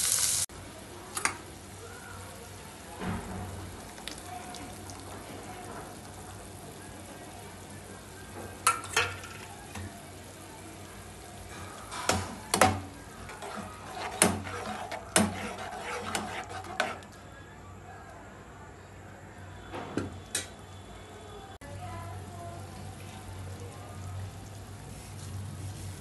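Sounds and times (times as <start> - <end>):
pot simmering and bubbling: 0.4 - 17.3, 21.6 - 26.0
metal spoon knocking on pan: 11.9 - 17.0.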